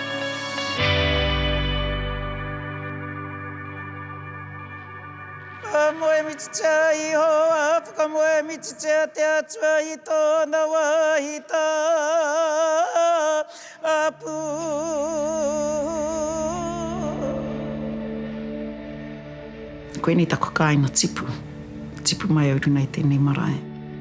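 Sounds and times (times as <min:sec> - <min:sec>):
low music drone: 0:00.0 - 0:08.6, 0:14.3 - 0:24.0
person chanting with vibrato: 0:05.6 - 0:18.2.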